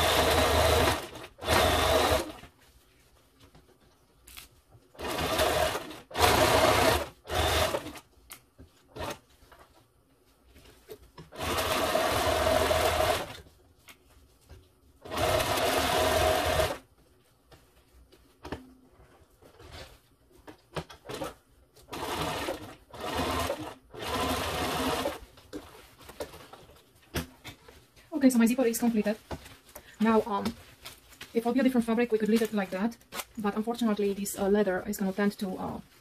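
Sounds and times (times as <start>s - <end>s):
sewing machine stitching: 0.0s - 2.4s, 5.0s - 8.0s, 11.3s - 13.4s, 15.0s - 16.8s, 20.9s - 25.2s.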